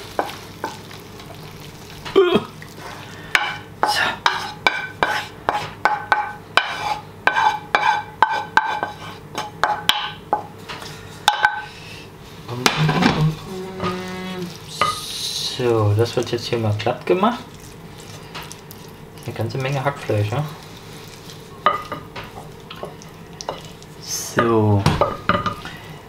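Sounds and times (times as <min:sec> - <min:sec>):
wooden spoon scraping a pan: 0:06.6 - 0:09.5.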